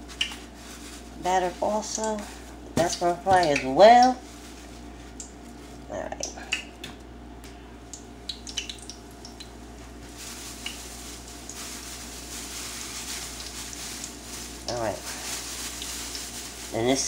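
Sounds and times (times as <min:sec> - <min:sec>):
light oil crackles: 0:07.9 - 0:16.8
fish sizzling in oil: 0:08.3 - 0:17.0.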